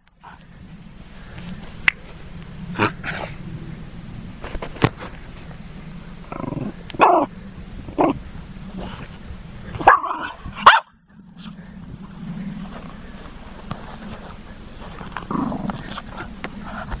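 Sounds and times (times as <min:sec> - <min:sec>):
steady low hum: 0:00.0 - 0:17.0
dog barking: 0:07.0 - 0:07.3, 0:09.8 - 0:10.9.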